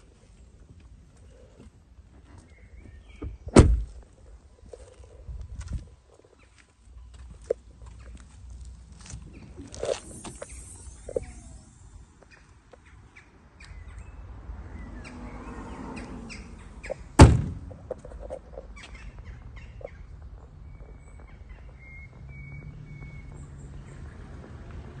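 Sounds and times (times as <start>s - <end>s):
car bonnet slamming shut: 3.2s - 3.9s, 17.2s - 17.7s.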